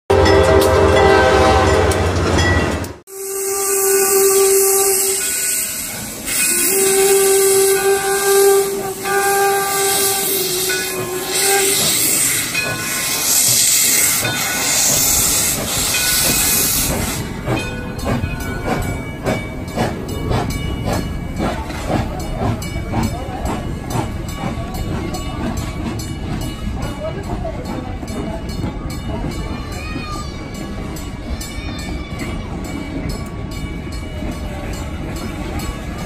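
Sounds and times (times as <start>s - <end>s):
train coaches clicking past: 0.1s - 36.0s
steam whistle blast: 3.1s - 12.5s
steam hissing: 3.1s - 26.6s.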